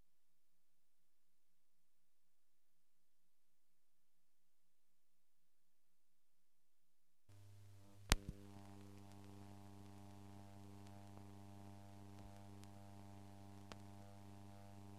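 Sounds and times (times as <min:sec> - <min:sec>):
electrical mains hum: 0:07.3 - 0:14.9
faint ticks: 0:07.3 - 0:14.9.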